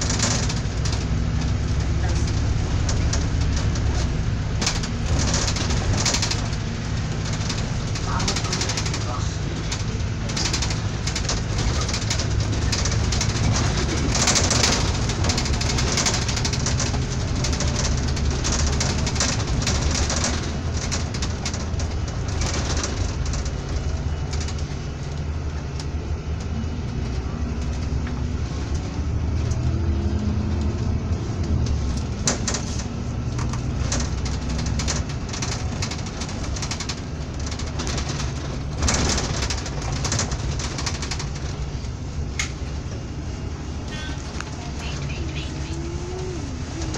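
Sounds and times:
cabin rattles and knocks: 0.0 - 25.1, 30.9 - 42.9
bus engine rumble: 0.0 - 46.9
loud clatter: 0.0 - 46.9.

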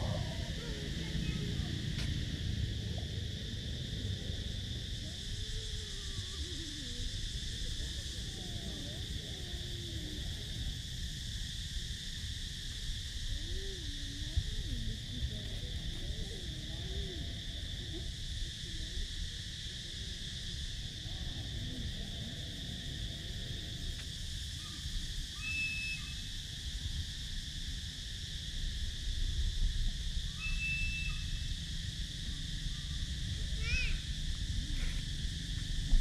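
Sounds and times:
high insect drone: 0.0 - 36.0
high whistled calls: 25.3 - 26.3, 30.2 - 31.6.

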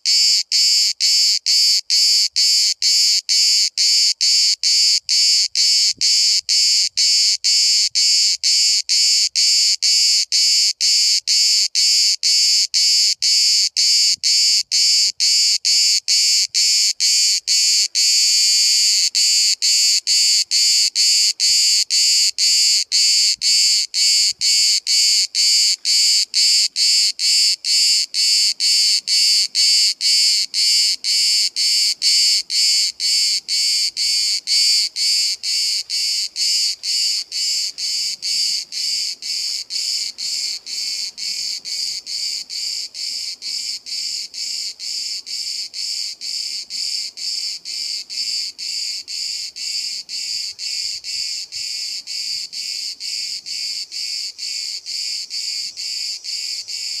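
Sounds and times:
cicada buzzing: 0.0 - 57.0.

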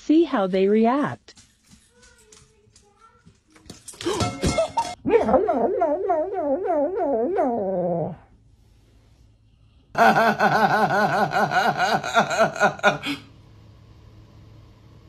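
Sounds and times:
person laughing: 10.0 - 13.3.

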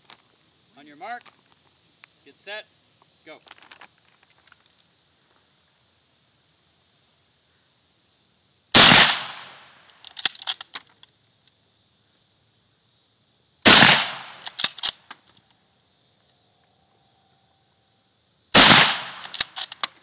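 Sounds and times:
rifle shots: 8.8 - 9.7, 13.6 - 15.0, 18.5 - 19.9
sharp clicks: 9.8 - 11.6, 13.8 - 15.5, 18.6 - 20.0.

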